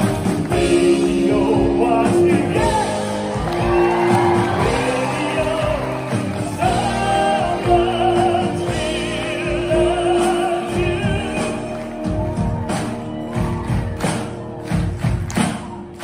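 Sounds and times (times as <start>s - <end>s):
keyboard and band accompaniment: 0.0s - 16.0s
man singing with vibrato: 0.5s - 12.2s.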